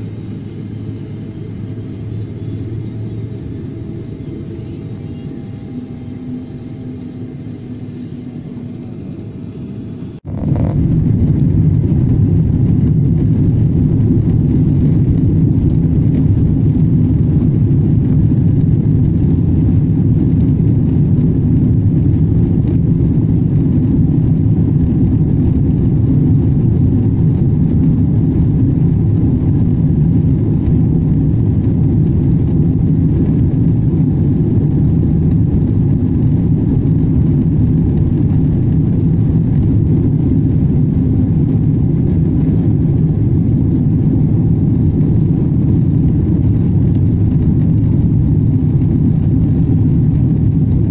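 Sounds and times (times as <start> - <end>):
faint steady hum: 0.0 - 50.9
jet engines rumbling at takeoff: 0.0 - 50.9.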